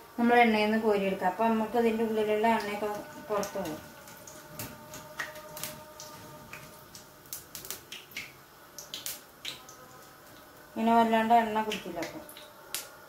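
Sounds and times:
food frying in hot oil: 0:00.0 - 0:13.0
oil crackling and popping: 0:02.5 - 0:10.6.

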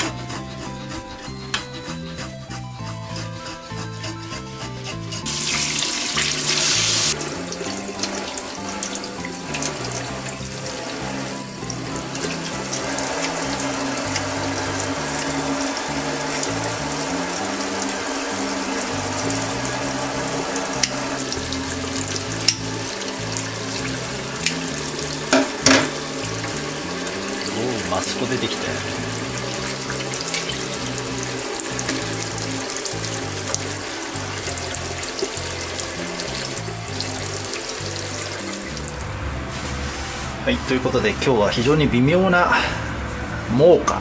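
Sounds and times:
background music: 0:00.0 - 0:44.0
tap water running into sink: 0:05.3 - 0:39.0.

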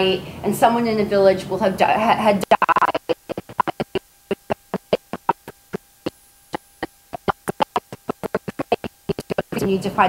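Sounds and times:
faint electrical hum: 0:00.0 - 0:10.0
woman's voice stuttering fragments: 0:02.0 - 0:05.8, 0:06.5 - 0:10.0.

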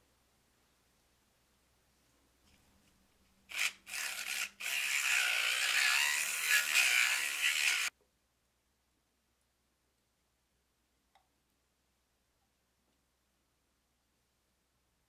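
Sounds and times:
handheld mixer whirring: 0:03.5 - 0:07.9.

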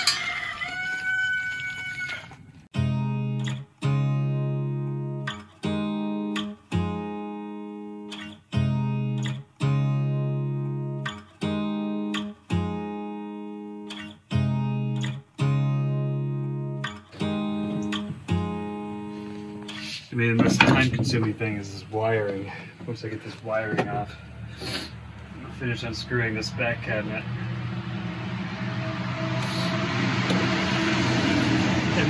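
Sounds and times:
acoustic guitar strumming chords: 0:02.8 - 0:21.5.

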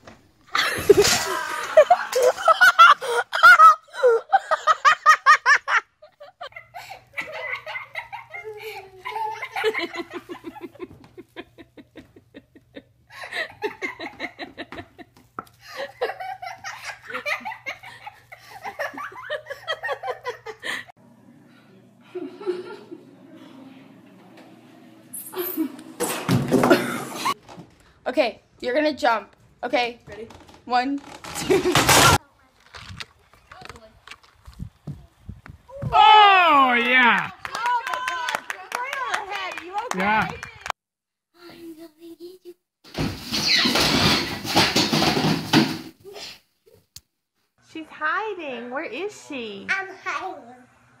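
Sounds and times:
hearty laughter: 0:00.6 - 0:20.9, 0:22.0 - 0:23.1.

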